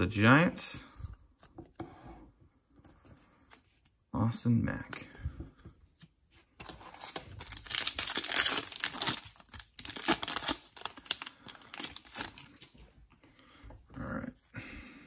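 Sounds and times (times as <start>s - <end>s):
cards rustling: 5.9s - 12.8s
foil wrapper tearing and crinkling: 6.6s - 12.7s.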